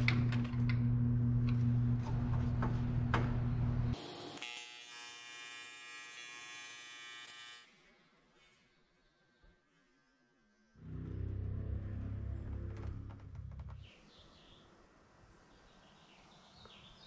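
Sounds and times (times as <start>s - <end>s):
steady low hum: 0.0s - 4.0s, 10.8s - 13.9s
welding arc buzzing: 3.9s - 7.7s.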